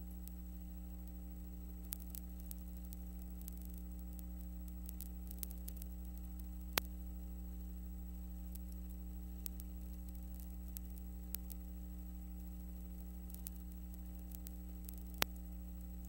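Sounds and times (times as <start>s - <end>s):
faint hiss: 0.0s - 16.0s
steady electrical hum: 0.0s - 16.0s
scattered clicks: 1.8s - 7.0s, 8.4s - 11.8s, 12.4s - 16.0s.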